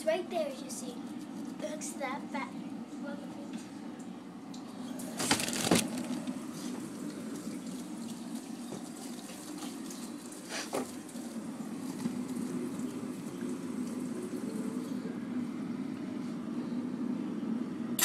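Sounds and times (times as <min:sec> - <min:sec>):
phone knocking against frozen food bags: 0:05.2 - 0:06.2
steady low hum: 0:11.1 - 0:18.0.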